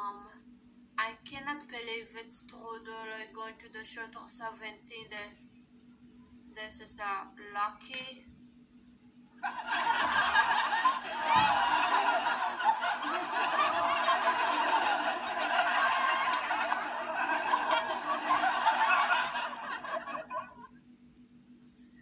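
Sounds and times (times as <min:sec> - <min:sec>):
canned audience laughter: 0:09.4 - 0:20.7.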